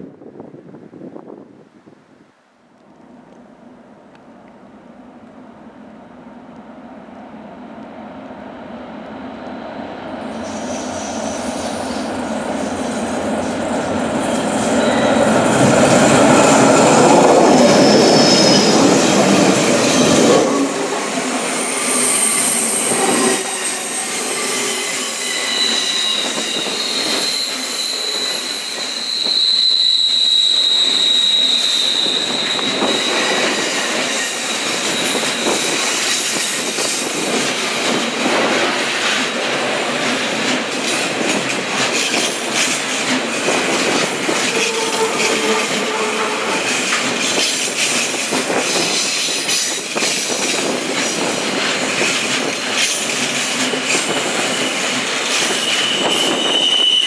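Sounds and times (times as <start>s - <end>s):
electric freight train passing: 3.0s - 57.0s
high-pitched wheel squeal: 16.1s - 20.8s, 21.4s - 36.5s, 44.2s - 47.5s, 53.9s - 57.0s.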